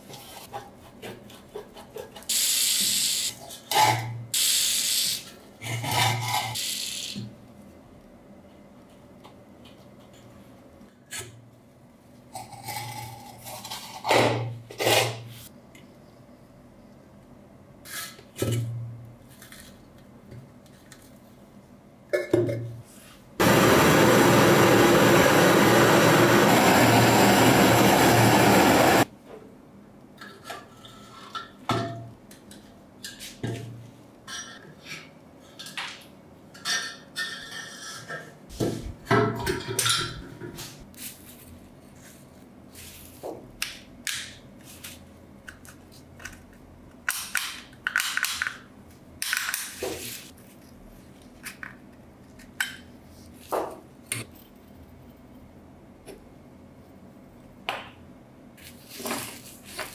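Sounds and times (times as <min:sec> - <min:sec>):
gas torch hissing: 0:23.4 - 0:29.1.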